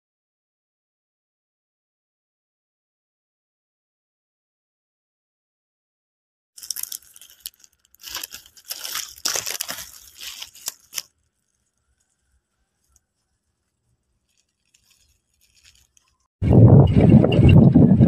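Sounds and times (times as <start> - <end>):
plastic packaging crinkling and tearing: 6.6 - 16.3.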